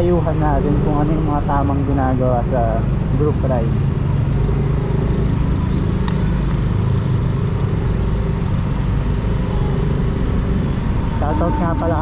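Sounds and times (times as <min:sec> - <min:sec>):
road and wind rumble: 0:00.0 - 0:12.0
scooter engine running: 0:03.8 - 0:12.0.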